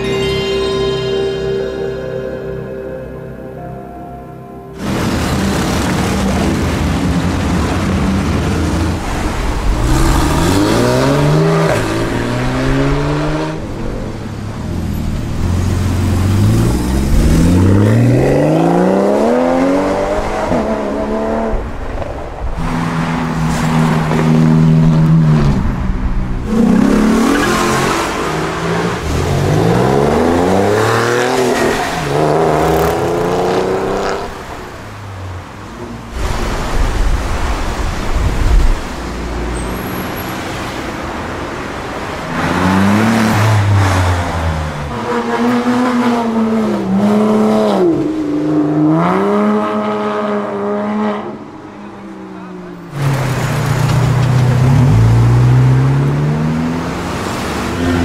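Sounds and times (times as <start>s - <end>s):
sports cars accelerating hard: 4.8s - 13.9s.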